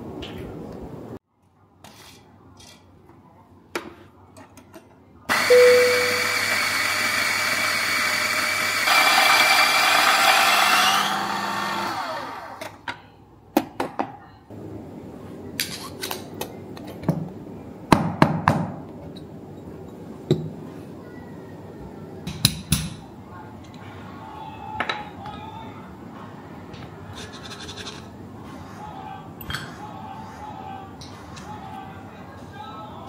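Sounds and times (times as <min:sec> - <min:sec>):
coffee grinder grinding beans: 0:05.3 - 0:12.8.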